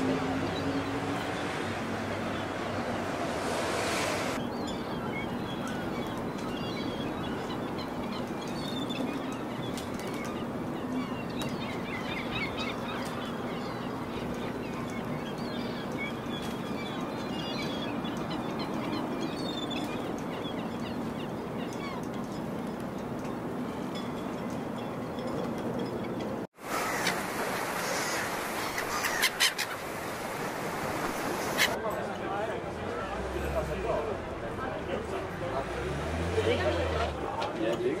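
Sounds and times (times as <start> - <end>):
small birds chirping: 4.4 - 26.2.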